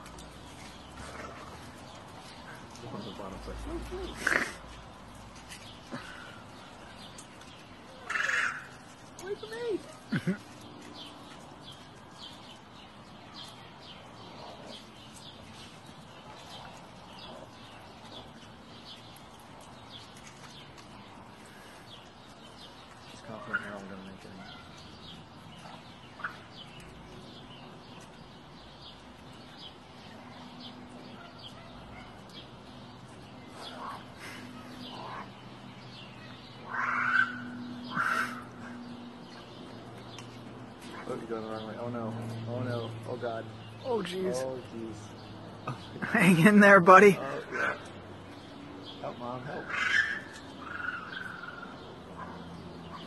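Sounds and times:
harsh animal calls: 3.6 - 4.9, 8.0 - 10.5, 36.6 - 39.0, 49.4 - 52.4.

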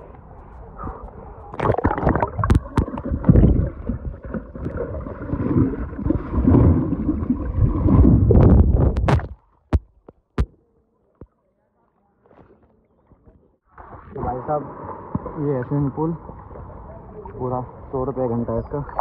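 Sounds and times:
muffled underwater water churning: 0.0 - 9.4.

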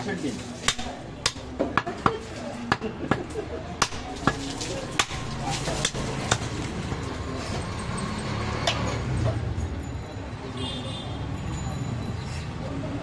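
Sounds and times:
voices: 0.0 - 13.0
knife chopping on wooden block: 0.7 - 4.4, 5.0 - 6.5.

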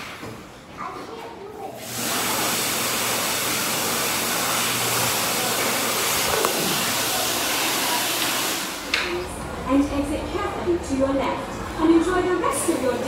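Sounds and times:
electric hand dryer blowing: 1.8 - 9.4.

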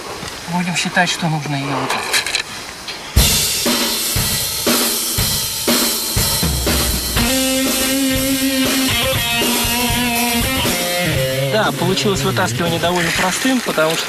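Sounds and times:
drum kit beat: 3.2 - 13.1
held melody notes: 6.2 - 13.0.

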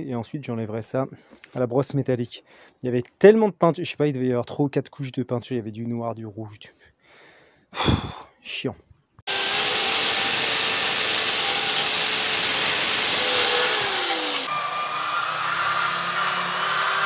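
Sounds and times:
electric drill motor hum: 9.3 - 17.0.

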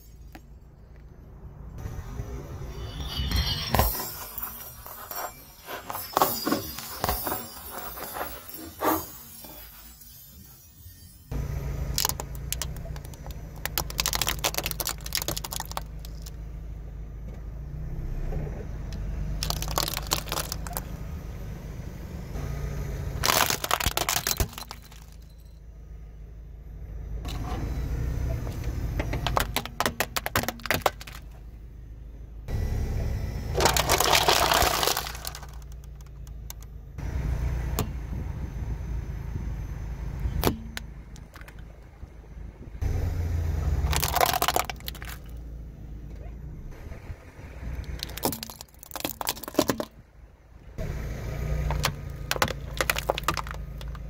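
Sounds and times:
tyre crushing brittle objects: 3.1 - 11.1, 11.9 - 16.4, 19.4 - 20.9, 23.2 - 25.4, 29.2 - 31.4, 33.6 - 36.6, 43.8 - 45.4, 47.8 - 49.9, 51.6 - 54.0
car engine running: 11.3 - 54.0.

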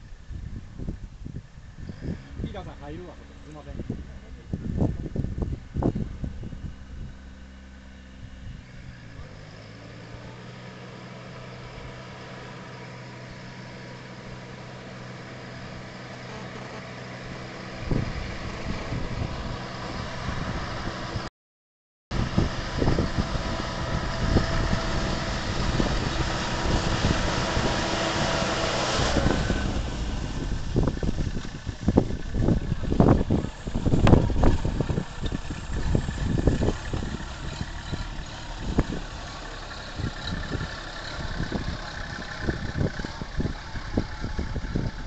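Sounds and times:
diesel engine running: 0.0 - 21.3, 22.1 - 45.0
sprayer fan blowing: 22.2 - 39.4.

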